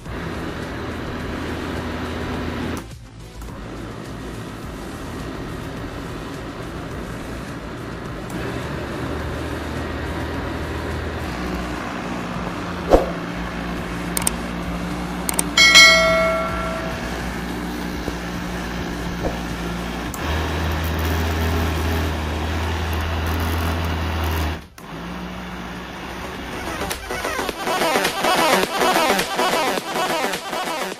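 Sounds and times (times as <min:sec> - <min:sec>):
electric blender motor running: 0:03.5 - 0:12.8, 0:19.6 - 0:29.2
sharp click: 0:14.2 - 0:14.4
bell-like ding: 0:15.6 - 0:17.5.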